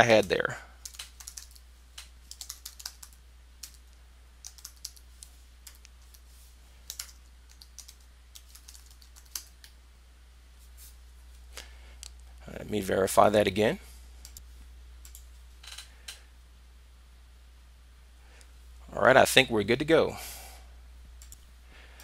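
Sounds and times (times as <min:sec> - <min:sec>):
faint low hum: 0:00.0 - 0:22.0
typing on computer keyboard: 0:00.8 - 0:06.2, 0:06.8 - 0:09.7, 0:15.0 - 0:16.2.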